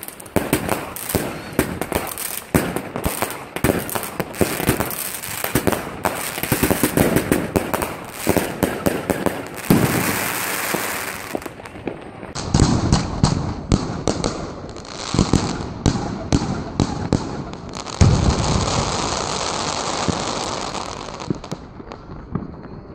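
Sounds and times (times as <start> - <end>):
firework hiss: 0.0 - 11.5.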